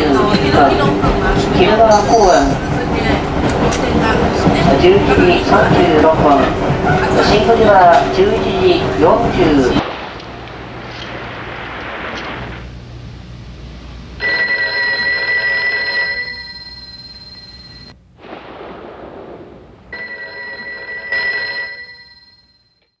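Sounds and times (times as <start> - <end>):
telephone bell ringing: 14.2 - 17.9, 20.0 - 22.8.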